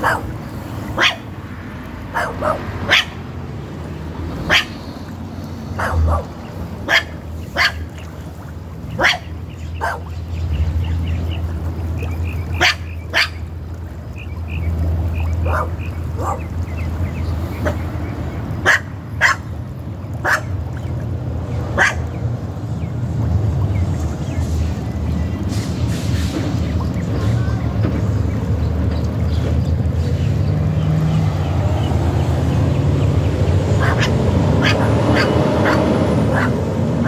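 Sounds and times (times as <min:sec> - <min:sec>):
dog barking: 0:00.0 - 0:00.3, 0:01.0 - 0:01.3, 0:02.1 - 0:03.2, 0:04.5 - 0:04.8, 0:05.8 - 0:07.8, 0:09.0 - 0:10.1, 0:12.6 - 0:13.4, 0:15.4 - 0:16.5, 0:18.6 - 0:19.5, 0:20.2 - 0:20.5, 0:21.8 - 0:22.1, 0:33.8 - 0:36.6.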